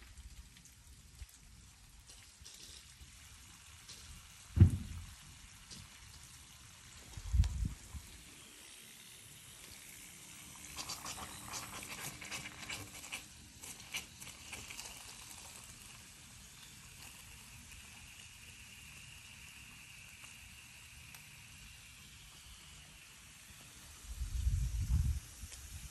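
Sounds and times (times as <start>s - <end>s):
faint steady hiss: 0.0s - 25.9s
sprinkler sputtering water: 0.0s - 25.9s
low thump: 4.6s - 5.0s.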